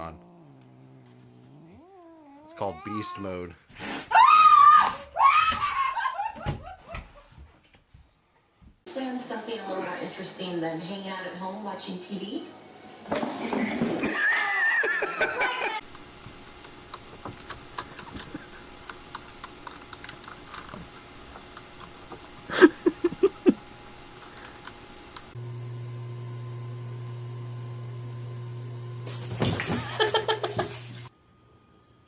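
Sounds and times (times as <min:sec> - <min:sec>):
faint hum: 0:00.0 - 0:03.6, 0:31.1 - 0:32.0.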